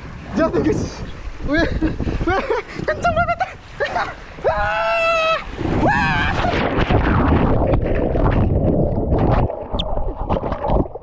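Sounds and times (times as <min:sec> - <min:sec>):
water rushing and splashing: 0:00.0 - 0:11.0.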